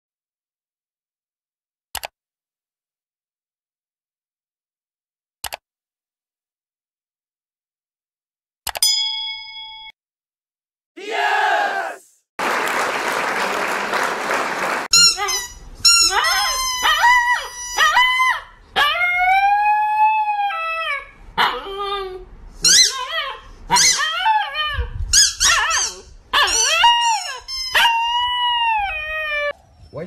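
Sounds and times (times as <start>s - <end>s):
dog howling and yowling: 16.1s - 22.2s, 22.8s - 24.9s, 25.5s - 29.6s.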